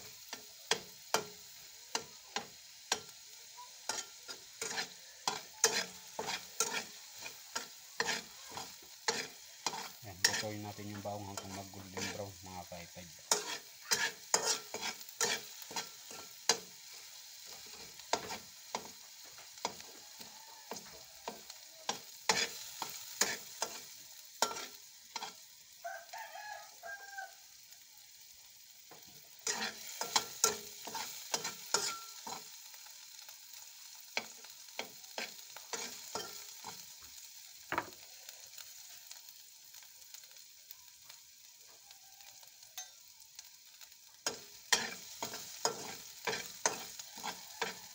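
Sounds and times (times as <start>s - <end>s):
garlic sizzling in oil: 0.0s - 47.9s
metal spatula scraping pan: 3.8s - 12.3s, 13.2s - 19.0s, 19.6s - 25.4s, 29.4s - 32.6s, 34.2s - 36.8s, 44.3s - 47.9s.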